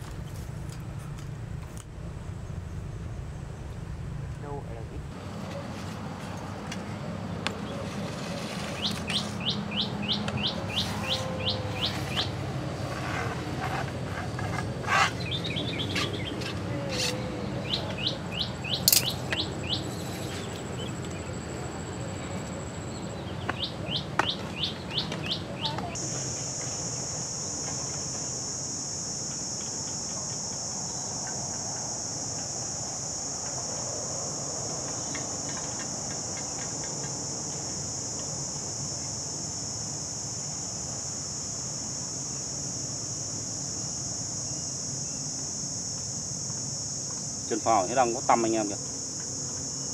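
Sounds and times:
insect buzzing drone: 6.0 - 49.9
bird chirping: 8.8 - 12.3, 15.0 - 21.4, 22.8 - 26.0.

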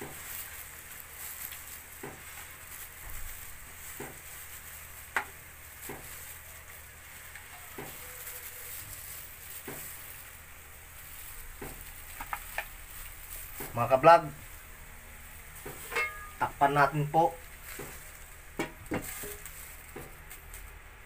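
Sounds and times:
meat sizzling in a pan: 0.0 - 21.0
spoon scraping and knocking pan: 5.1 - 6.1, 15.6 - 16.6, 17.6 - 20.2.

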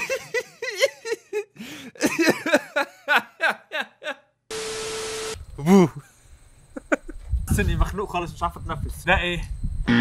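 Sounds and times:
man chuckling and giggling: 0.0 - 4.3, 5.6 - 6.1, 6.7 - 7.3
hissing buzz with held tone: 4.5 - 7.1.

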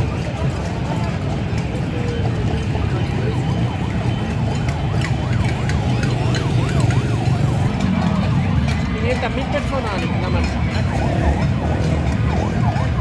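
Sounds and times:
large street crowd noise: 0.0 - 13.0
siren sweeping: 0.0 - 13.0.

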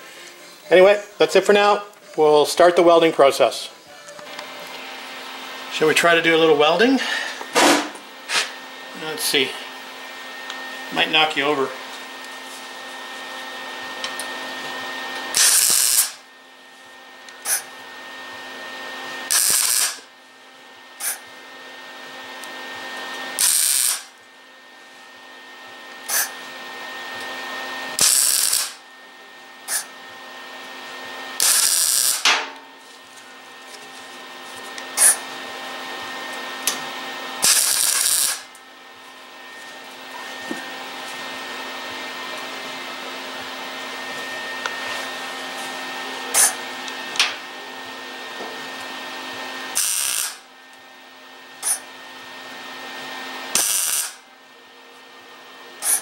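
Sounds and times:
welder humming: 0.0 - 56.0
welding arc crackle: 15.3 - 16.2, 19.2 - 20.1, 23.2 - 24.2, 28.0 - 28.8, 31.4 - 32.4, 37.4 - 38.5, 49.7 - 50.4, 53.5 - 54.2.

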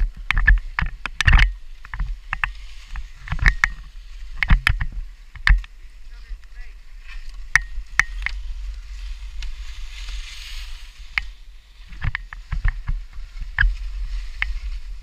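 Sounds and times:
sharp clicks and knocks: 0.0 - 5.7, 7.4 - 8.4, 11.1 - 14.6
wind rumble on microphone: 0.0 - 15.0.

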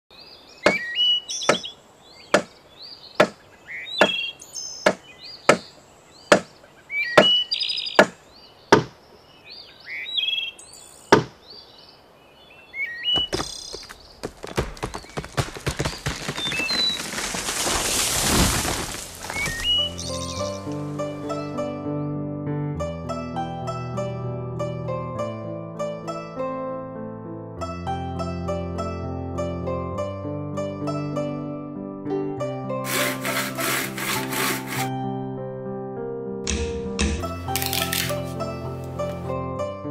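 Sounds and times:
birds chirping: 0.1 - 21.5
billhook chopping bamboo: 0.7 - 0.9, 1.5 - 1.7, 2.3 - 2.5, 3.2 - 3.4, 4.0 - 4.2, 4.8 - 5.7, 6.3 - 6.5, 7.2 - 7.4, 8.0 - 9.0, 32.9 - 34.9, 36.5 - 38.4
rushing rustle: 13.2 - 21.0, 32.9 - 34.9.

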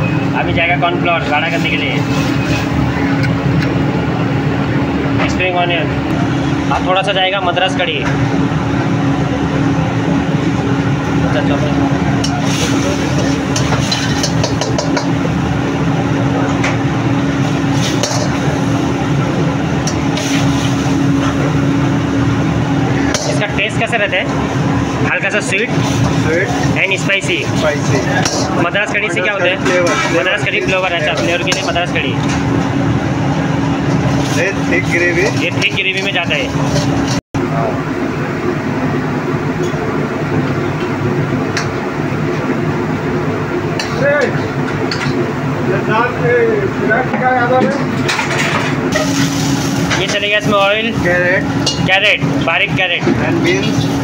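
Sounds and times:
burners and ventilation drone: 0.0 - 54.0
kitchen roar with hum: 0.0 - 54.0
ladle scraping in a wok: 12.2 - 15.2, 17.4 - 18.7, 19.9 - 21.4, 27.4 - 28.6, 36.5 - 37.2.

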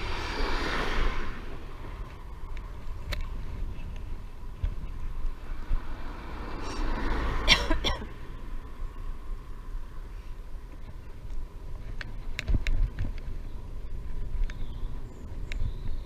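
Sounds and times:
wind rumbling on microphone: 0.0 - 7.5, 8.4 - 16.0.

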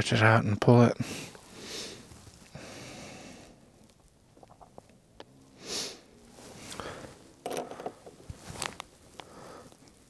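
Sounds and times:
sharp sniff through nose: 5.6 - 7.1.

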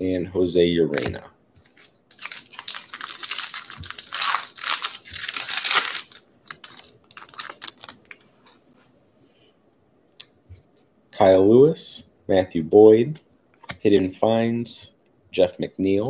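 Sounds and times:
wrapper tearing and crinkling: 1.7 - 8.2.

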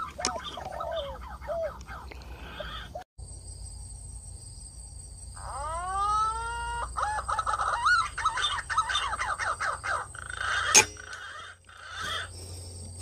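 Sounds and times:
bird calling in whistled notes: 5.4 - 12.3.

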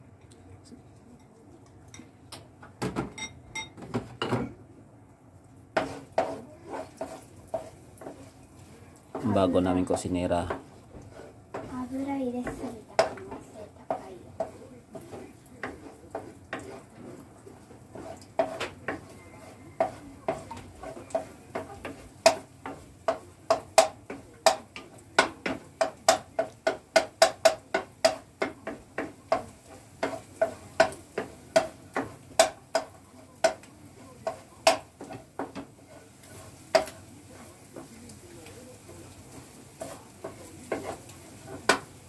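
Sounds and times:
spatula knocking frying pan: 5.8 - 8.3, 10.4 - 17.2, 17.9 - 38.0, 39.0 - 42.0.

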